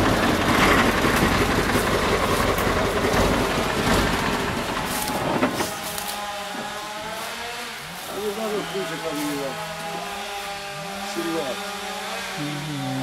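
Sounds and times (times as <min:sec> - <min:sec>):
tipper body rattling: 0:00.0 - 0:05.8
diesel truck engine running: 0:00.0 - 0:13.0.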